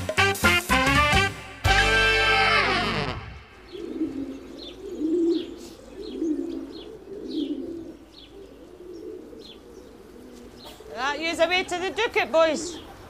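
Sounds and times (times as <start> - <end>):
pigeons cooing: 2.6 - 13.0
small birds chirping: 3.4 - 13.0.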